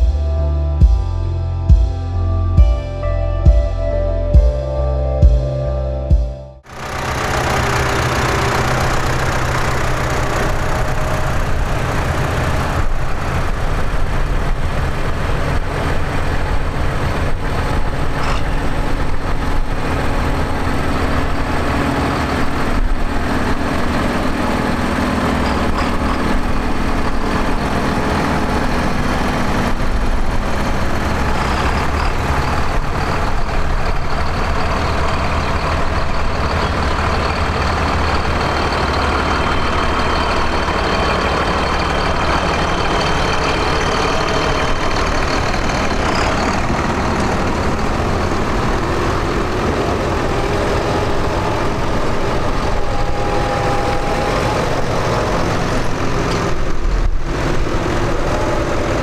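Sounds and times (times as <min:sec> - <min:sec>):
diesel tractors driving past: 0:03.1 - 0:59.0.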